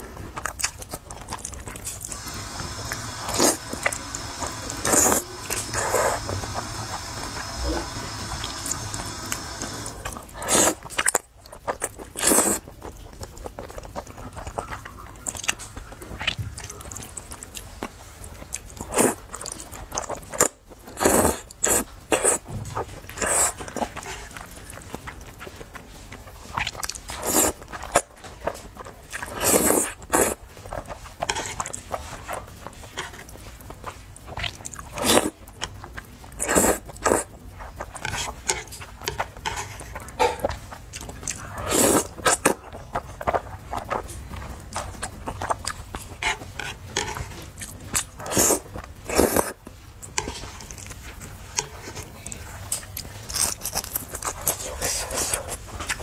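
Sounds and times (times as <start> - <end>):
wet chewing and mouth clicks: 0.0 - 56.0
slurping noodles: 1.3 - 11.2, 11.8 - 12.7, 18.7 - 24.4, 26.6 - 28.1, 29.1 - 32.4, 34.6 - 35.4, 36.4 - 40.6, 41.2 - 44.1, 44.8 - 49.6.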